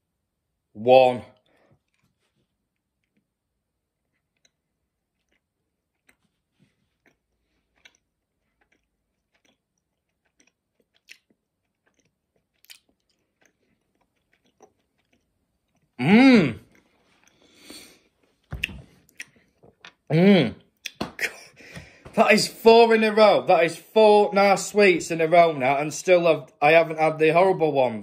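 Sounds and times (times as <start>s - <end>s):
person chewing with mouth clicks: 1.8s - 20.1s.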